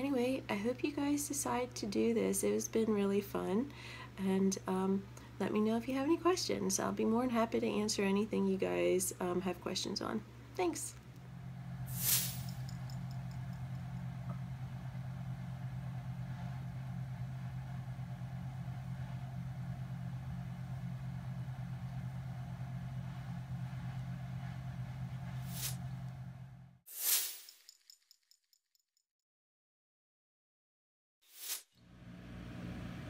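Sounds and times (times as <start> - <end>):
low mechanical hum: 0.0 - 26.8, 31.8 - 33.0.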